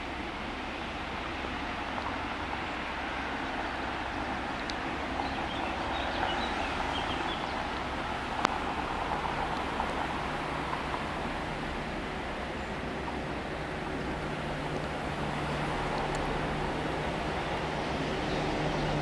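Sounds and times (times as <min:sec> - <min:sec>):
diesel locomotive engine hum: 0:00.0 - 0:19.0
birds chirping: 0:05.0 - 0:07.7.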